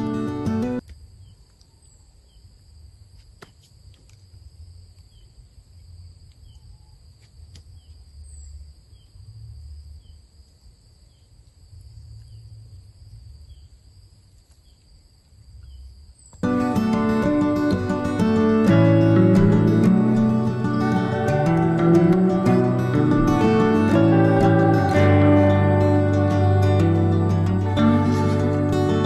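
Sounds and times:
acoustic guitar music: 0:00.0 - 0:00.8, 0:16.4 - 0:29.0
short soft insect chirp: 0:00.8 - 0:16.4
high-pitched insect drones: 0:16.4 - 0:29.0.

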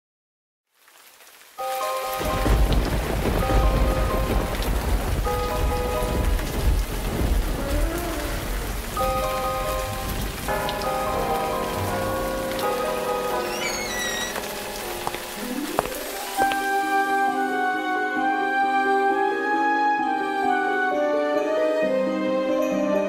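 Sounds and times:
heavy rain hissing: 0:00.7 - 0:18.3
thunder rumbling: 0:02.2 - 0:16.1.

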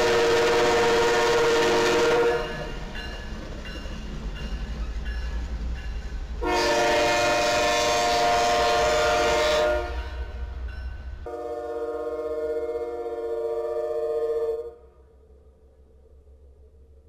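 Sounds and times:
locomotive air horn blasts: 0:00.0 - 0:02.8, 0:06.4 - 0:10.4, 0:11.2 - 0:14.8
train rumble and wheel noise: 0:00.0 - 0:17.0.

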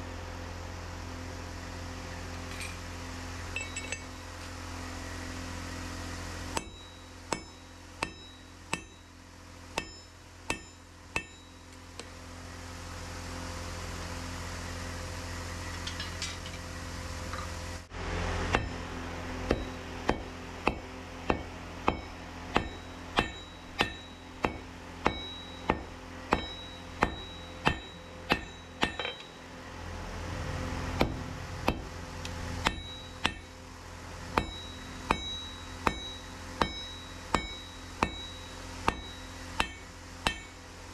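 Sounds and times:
steady low hum: 0:00.0 - 0:40.9
hammer striking steel on anvil: 0:03.5 - 0:04.2, 0:06.5 - 0:12.1, 0:18.5 - 0:29.5, 0:31.0 - 0:31.9, 0:32.6 - 0:33.6, 0:34.3 - 0:40.7.

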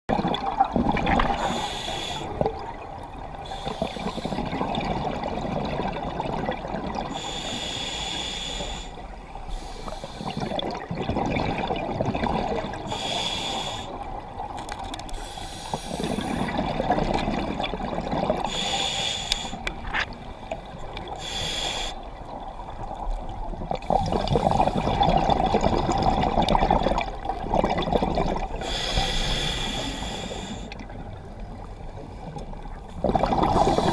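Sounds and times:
exhaled bubbles rumbling: 0:00.1 - 0:01.6, 0:02.2 - 0:07.3, 0:10.2 - 0:13.0, 0:15.8 - 0:18.6, 0:22.2 - 0:28.7, 0:30.7 - 0:33.9
regulator inhalation hiss: 0:01.4 - 0:02.3, 0:07.1 - 0:10.4, 0:12.9 - 0:14.0, 0:15.2 - 0:16.4, 0:18.5 - 0:19.6, 0:21.2 - 0:22.0, 0:28.6 - 0:30.7.

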